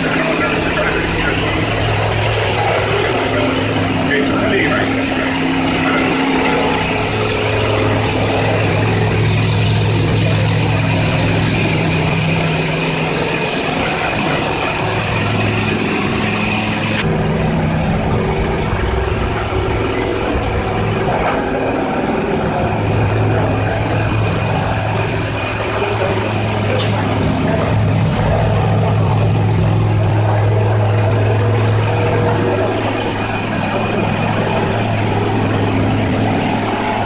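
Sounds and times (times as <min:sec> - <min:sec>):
water jets hissing on car: 0:00.0 - 0:17.0
pump motor humming: 0:00.0 - 0:37.0.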